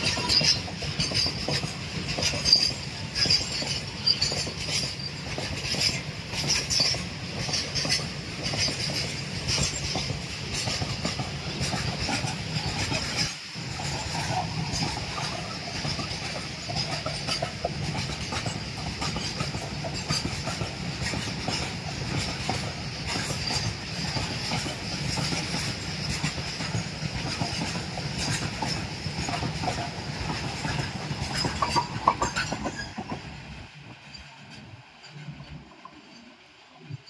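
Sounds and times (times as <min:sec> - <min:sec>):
train wagons rumbling past: 0:00.0 - 0:37.0
wheels clattering on rail joints: 0:00.0 - 0:37.0.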